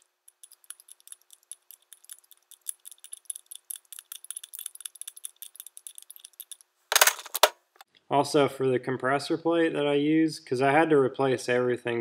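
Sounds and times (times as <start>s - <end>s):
hand ratchet clicking: 0.0s - 6.6s.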